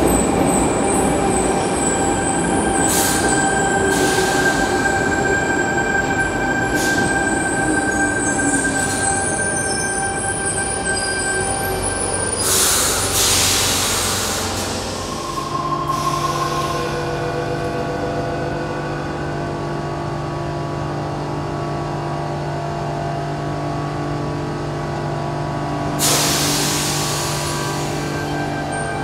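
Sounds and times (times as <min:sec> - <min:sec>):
train air hissing: 0:02.7 - 0:05.4, 0:06.7 - 0:07.6, 0:12.4 - 0:17.2, 0:26.0 - 0:28.7.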